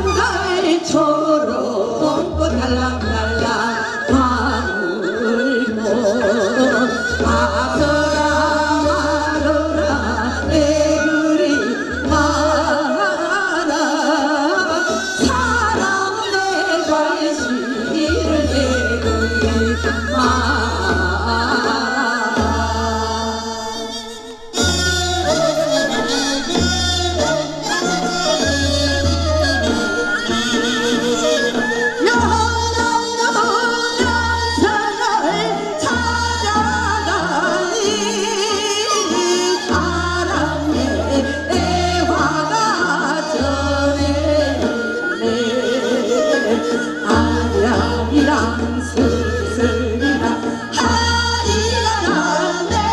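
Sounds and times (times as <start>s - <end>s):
women singing folk song: 0.0s - 24.0s, 24.6s - 52.9s.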